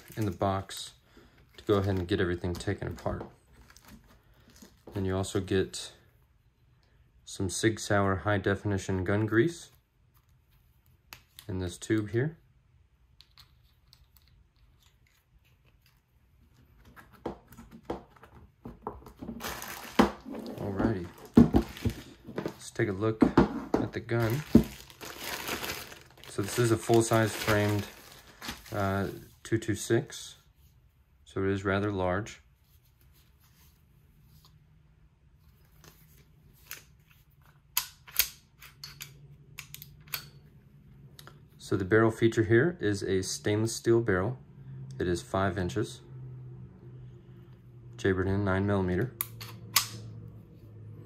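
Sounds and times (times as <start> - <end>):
plastic rustling: 0.0 - 4.9, 18.8 - 22.8, 23.7 - 29.3.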